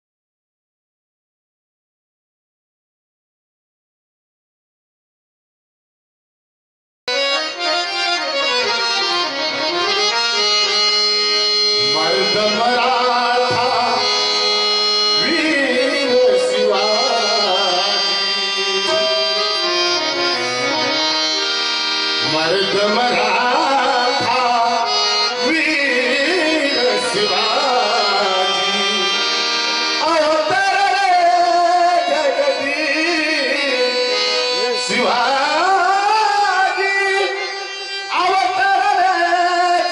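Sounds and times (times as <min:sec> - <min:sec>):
harmonium melody: 0:07.1 - 0:39.9.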